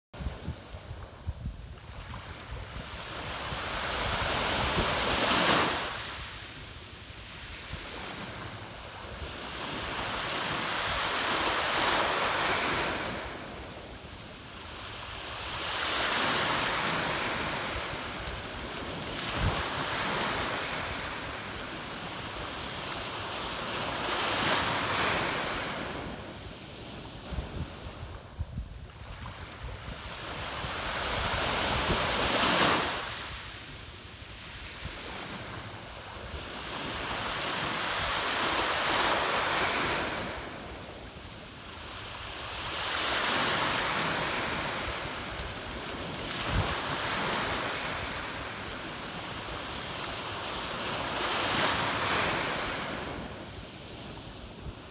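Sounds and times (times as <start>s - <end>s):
wind buffeting microphone: 0.1s - 6.4s, 17.3s - 21.2s, 46.0s - 48.2s
small waves breaking on beach: 0.2s - 54.9s.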